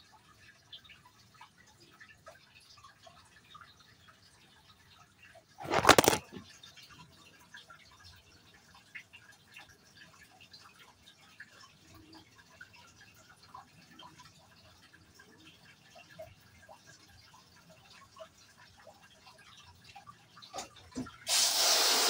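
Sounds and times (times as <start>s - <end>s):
water dripping: 0.0s - 5.6s, 6.2s - 21.3s
camera handling clatter: 5.6s - 6.4s.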